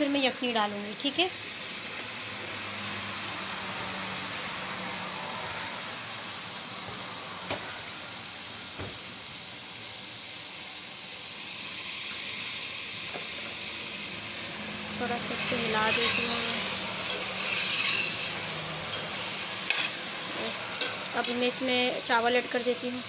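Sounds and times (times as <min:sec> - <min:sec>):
food sizzling in oil: 0:00.0 - 0:23.0.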